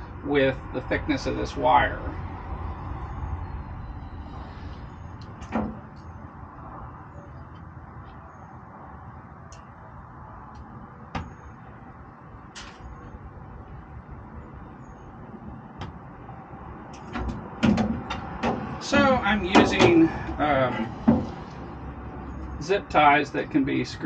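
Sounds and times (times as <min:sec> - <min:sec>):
clicks and knocks on metal: 0:17.0 - 0:20.4.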